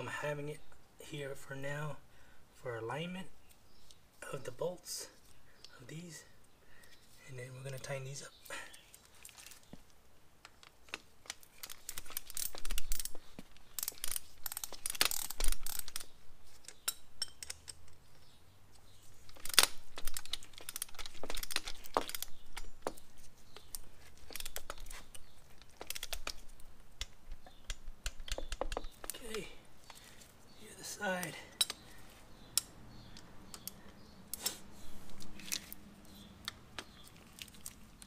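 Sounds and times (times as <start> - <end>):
metallic clicks of wrench and hardware: 13.8 - 18.0, 31.6 - 31.8.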